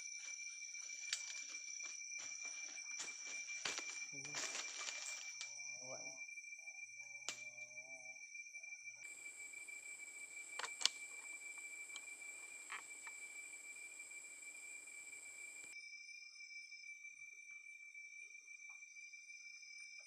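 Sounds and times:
night insects trilling: 0.0 - 20.0
sharp clicks: 10.4 - 13.2.

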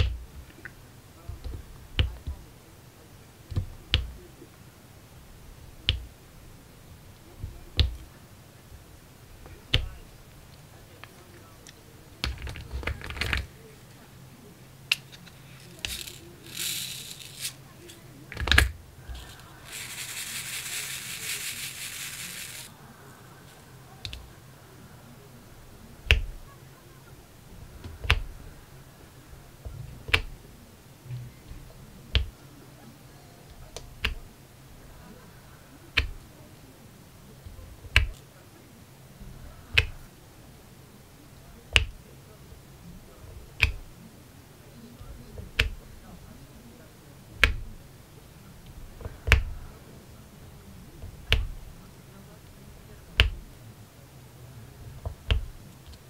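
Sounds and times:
plastic containers clicking: 12.2 - 13.5, 14.9 - 22.7
pen clicking beads onto canvas: 14.9 - 22.7
resin beads rattling in a tray: 15.2 - 22.7.

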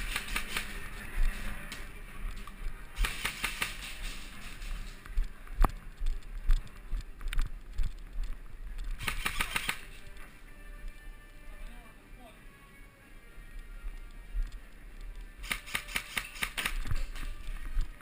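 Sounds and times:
airsoft guns firing: 0.0 - 0.8, 3.0 - 4.2, 9.0 - 10.0, 15.4 - 17.2.

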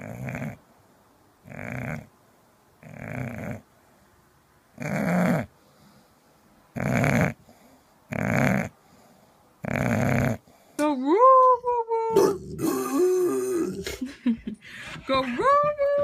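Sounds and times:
dog snoring: 0.0 - 0.6, 1.4 - 2.1, 2.8 - 3.6, 4.8 - 5.5, 6.7 - 10.6.

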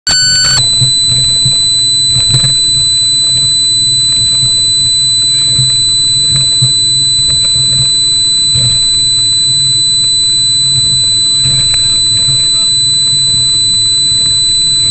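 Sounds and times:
steady high whine: 0.0 - 14.9.

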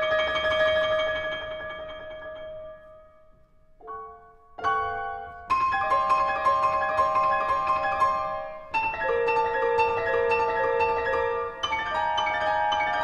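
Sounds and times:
grand piano solo: 3.8 - 13.0.

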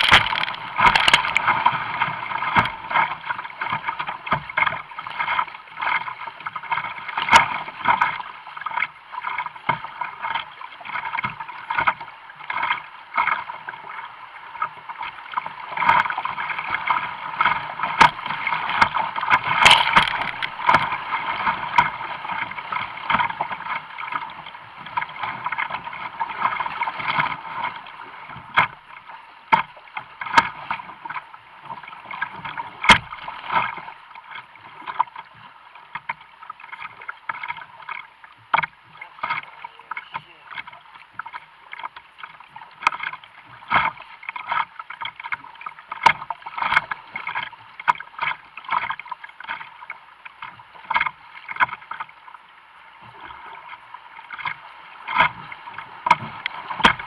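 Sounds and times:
sharp knocks on hull: 0.0 - 6.0, 16.7 - 23.8, 29.5 - 31.2, 32.2 - 33.8, 54.4 - 57.0
water splashing against kayak: 0.0 - 57.0.

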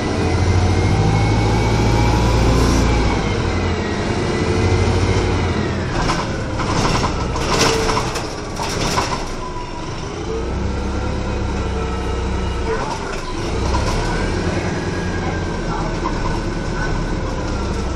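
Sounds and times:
bus engine droning: 0.0 - 17.9
drivetrain whine: 0.0 - 17.9
rattles: 5.9 - 9.6.

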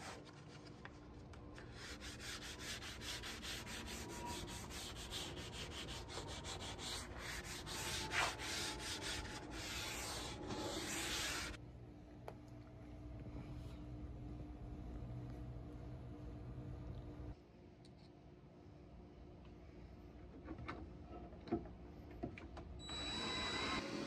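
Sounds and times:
sandpaper scraping wood: 1.7 - 11.6.

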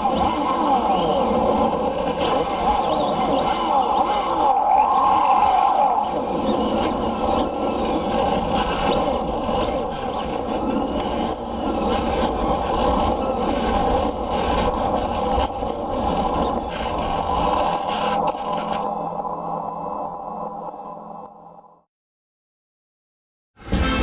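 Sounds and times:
electric motor whine: 0.0 - 14.0.

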